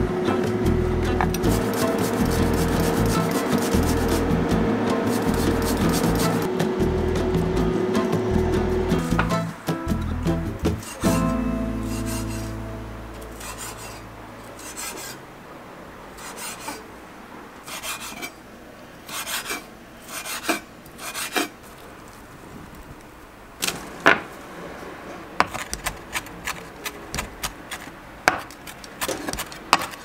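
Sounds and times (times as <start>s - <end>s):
vegetables scraping strokes: 1.3s - 6.5s, 10.7s - 15.2s, 16.2s - 16.9s, 17.6s - 18.4s, 19.1s - 21.8s, 25.4s - 30.0s.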